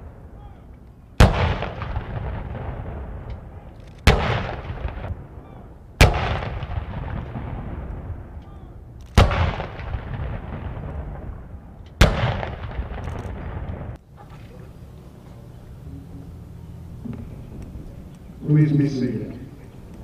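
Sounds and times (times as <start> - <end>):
cannon shots with echo: 1.2 - 14.0.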